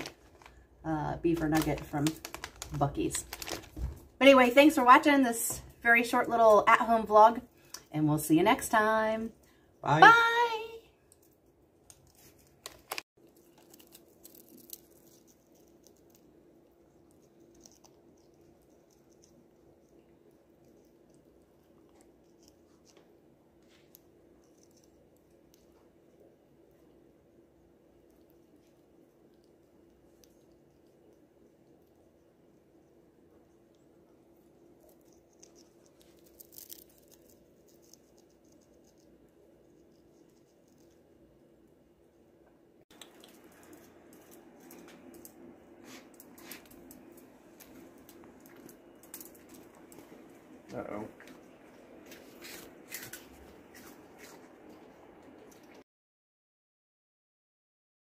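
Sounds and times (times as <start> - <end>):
low steady hum: 0.0 - 55.8
parrot beak nibbling snack: 11.0 - 27.0, 34.4 - 41.2, 42.9 - 50.4.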